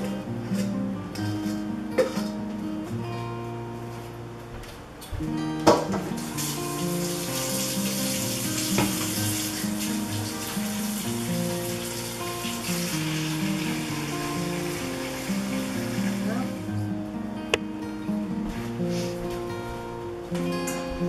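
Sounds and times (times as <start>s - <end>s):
background music: 5.4s - 21.0s
faucet running water into sink: 6.4s - 16.6s.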